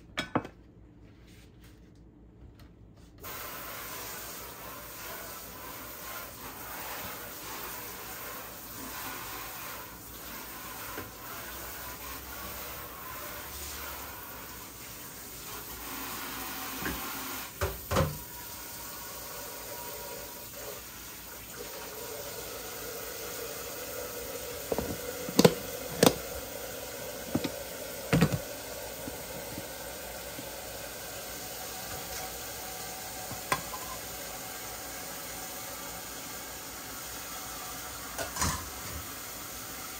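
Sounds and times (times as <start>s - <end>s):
dishes clattering on counter: 0.1s - 0.6s, 24.7s - 26.3s, 27.3s - 28.5s, 33.3s - 34.0s, 38.2s - 39.0s.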